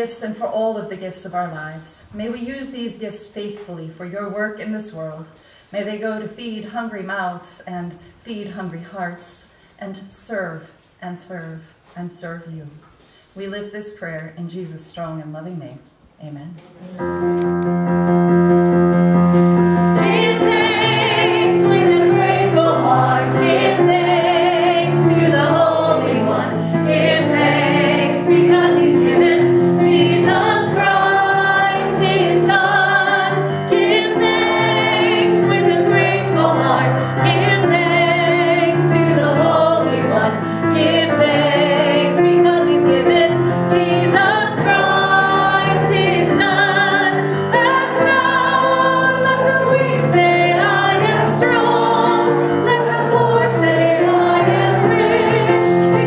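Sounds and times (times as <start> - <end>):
piano accompaniment: 16.8 - 56.0
congregation singing a hymn: 19.3 - 56.0.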